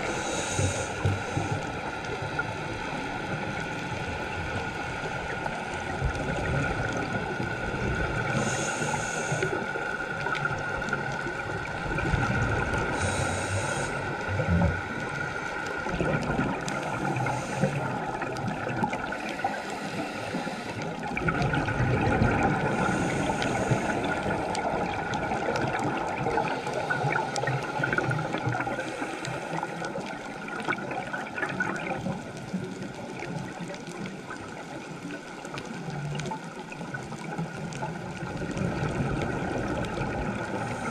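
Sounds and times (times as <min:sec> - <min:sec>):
regulator hissing inhale: 0:00.0 - 0:02.5, 0:08.2 - 0:09.9, 0:12.9 - 0:15.6, 0:16.7 - 0:18.2, 0:19.1 - 0:21.0, 0:22.6 - 0:24.6, 0:26.4 - 0:27.7, 0:28.7 - 0:30.0, 0:40.6 - 0:40.9
bubbling exhales: 0:11.7 - 0:32.1.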